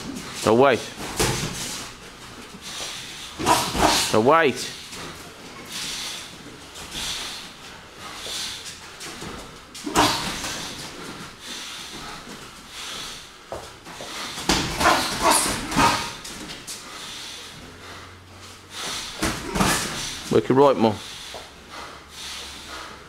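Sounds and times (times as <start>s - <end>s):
boxing gloves landing punches: 1.0s - 1.8s, 3.4s - 4.1s, 9.1s - 10.9s, 14.4s - 16.5s.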